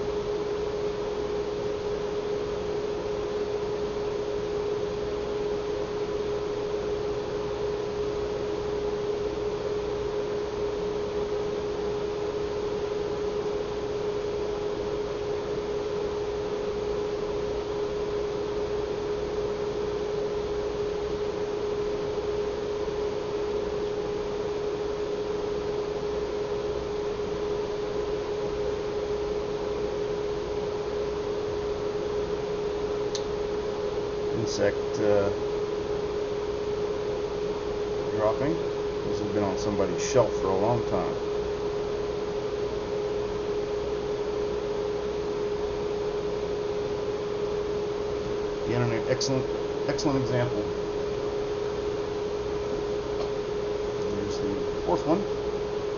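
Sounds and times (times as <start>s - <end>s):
steady hum: 0.0s - 55.9s.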